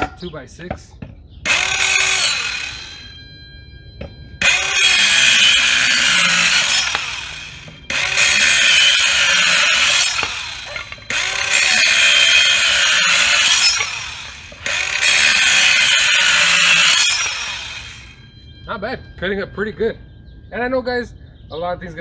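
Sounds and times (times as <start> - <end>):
circular saw cutting wood: 1.5 - 3.1, 4.4 - 18.3.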